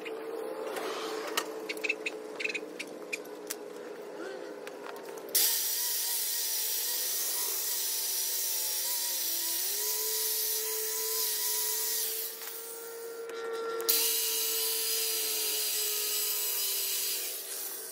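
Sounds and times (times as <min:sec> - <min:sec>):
power tool cutting metal: 0:05.3 - 0:17.9.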